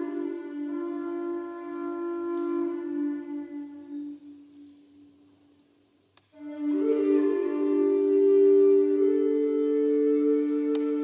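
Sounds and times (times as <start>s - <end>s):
higher flute tone: 0.0s - 5.5s, 6.3s - 11.0s
bamboo flute low note: 6.4s - 11.0s.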